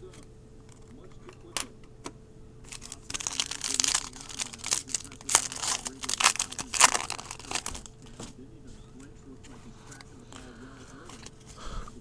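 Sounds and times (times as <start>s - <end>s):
foil wrapper tearing and crinkling: 2.7s - 7.9s.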